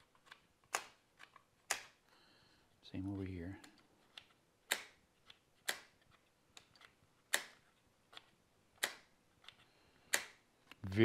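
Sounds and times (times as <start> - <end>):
switch clicks: 0.6 - 2.0, 3.6 - 10.9.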